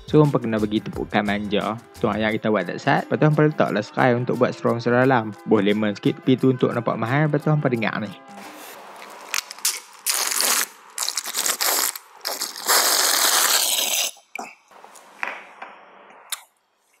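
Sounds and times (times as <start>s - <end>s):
slurping an iced drink: 9.0s - 14.4s.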